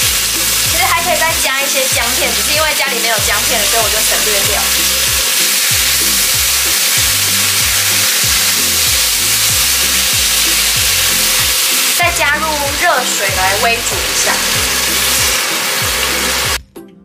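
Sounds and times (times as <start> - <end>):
background music with bass beat: 0.0 - 1.4, 3.3 - 12.8
chicken sizzling in hot oil: 0.0 - 16.6.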